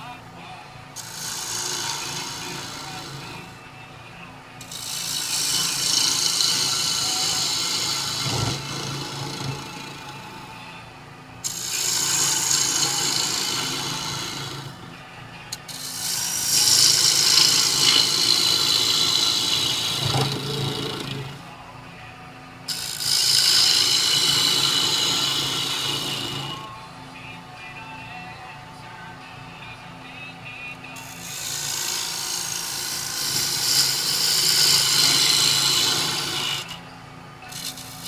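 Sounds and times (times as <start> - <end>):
lathe humming: 0.0 - 28.7, 29.3 - 38.0
lathe tool shearing wood: 0.9 - 3.6, 4.6 - 10.7, 11.4 - 21.5, 22.7 - 26.8, 30.8 - 36.8, 37.4 - 38.0.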